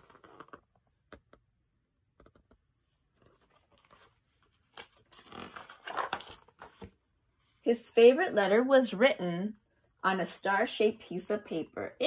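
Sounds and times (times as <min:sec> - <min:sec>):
book page turning: 0:00.0 - 0:00.7, 0:03.1 - 0:07.0.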